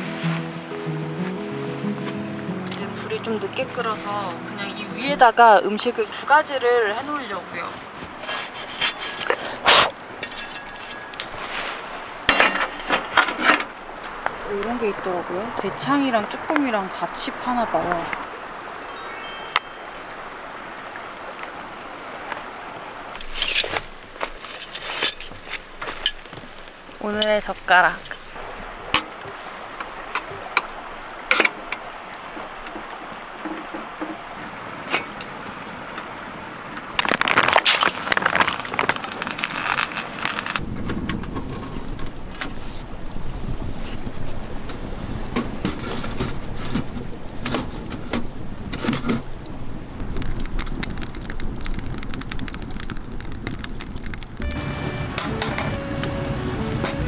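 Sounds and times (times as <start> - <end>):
burning logs crackling: 0.0 - 57.0
rustling: 7.7 - 13.8, 23.2 - 28.5, 37.0 - 40.6
handling clicks and clinks: 23.2 - 26.3.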